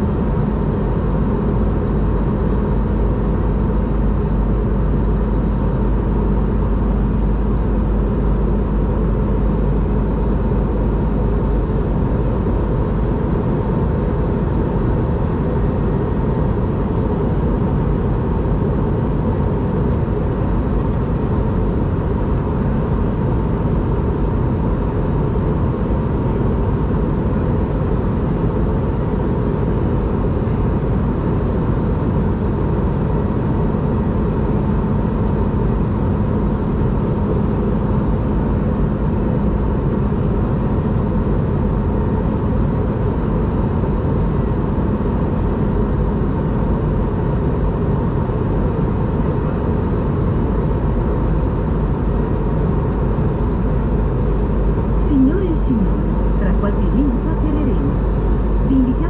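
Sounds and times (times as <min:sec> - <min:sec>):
airliner cabin engine rush: 0:00.0 - 0:59.0
faint high whine: 0:48.2 - 0:59.0.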